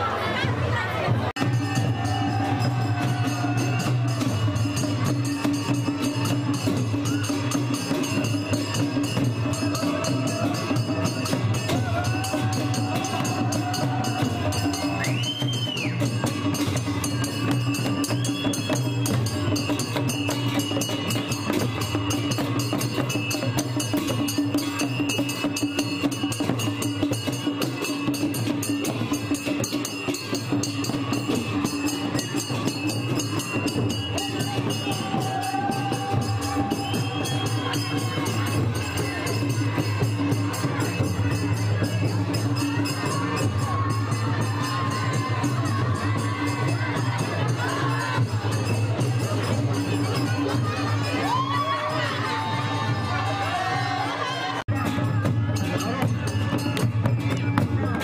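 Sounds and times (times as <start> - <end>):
music with drums and percussion: 0.0 - 58.0.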